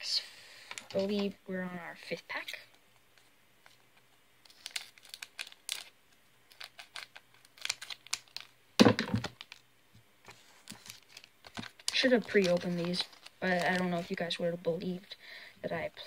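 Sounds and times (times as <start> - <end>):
foil wrapper crinkling: 4.4 - 8.6, 9.2 - 9.6, 10.4 - 14.2.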